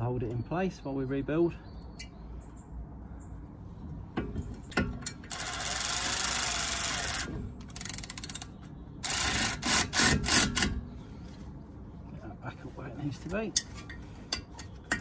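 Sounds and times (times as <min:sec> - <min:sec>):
cordless ratchet running: 0:05.3 - 0:10.6.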